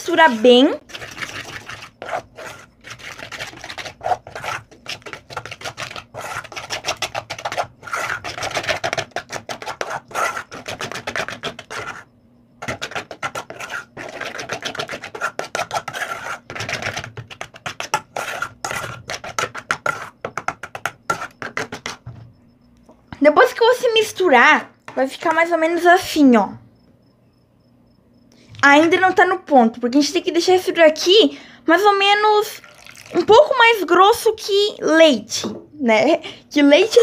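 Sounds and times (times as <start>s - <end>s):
metal spoon stirring in metal pot: 0.1s - 22.0s.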